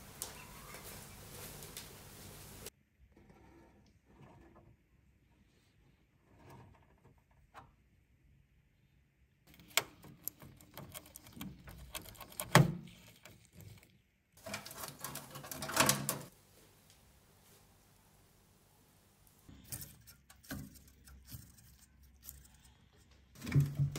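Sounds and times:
clicking and scraping on computer parts: 9.5s - 16.3s, 19.5s - 22.8s.

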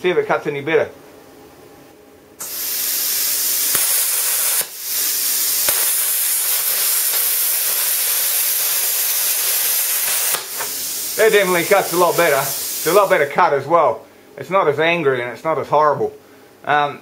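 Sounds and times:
plasma cutter arc hissing: 2.4s - 13.4s.

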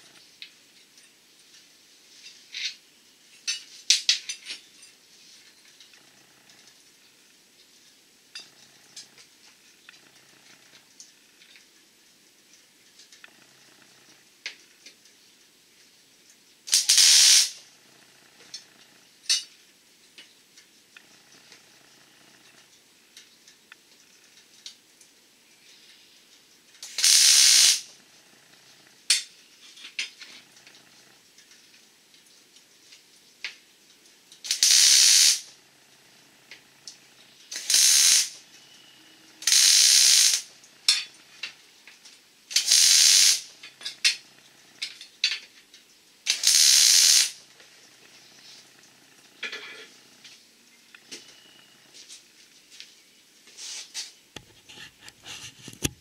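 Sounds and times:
compressed air tool hissing: 16.7s - 17.6s, 26.9s - 27.9s, 34.5s - 35.5s, 37.5s - 40.5s, 42.5s - 43.6s, 46.3s - 47.4s
handling clicks and taps: 54.4s - 56.0s.

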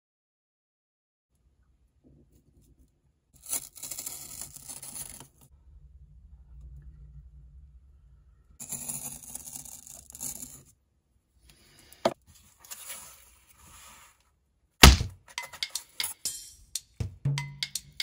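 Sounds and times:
loud thump: 14.8s - 15.2s.

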